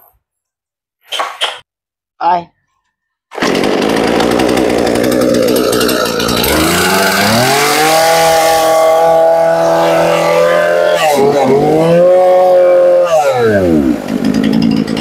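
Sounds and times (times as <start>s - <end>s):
chainsaw engine running: 3.3s - 15.0s.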